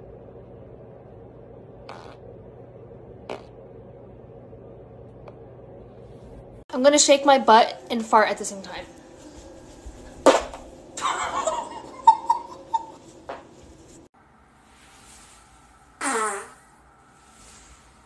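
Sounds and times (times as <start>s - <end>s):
fart: 1.8s - 2.4s, 3.2s - 3.6s, 16.0s - 16.8s
woman giggling: 11.0s - 13.0s.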